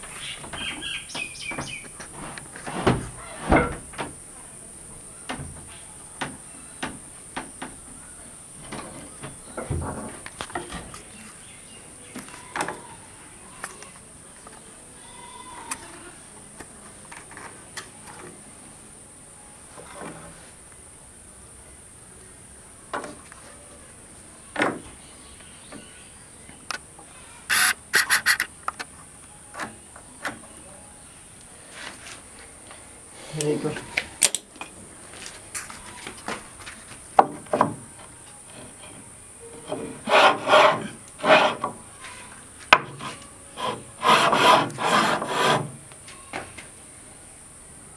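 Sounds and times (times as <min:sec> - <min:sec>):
high insect drone: 0:23.8 - 0:34.2.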